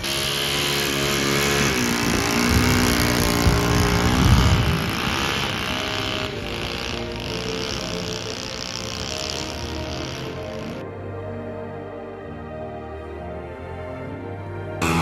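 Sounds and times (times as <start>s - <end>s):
model airplane engine running: 0.0s - 10.8s, 14.8s - 15.0s.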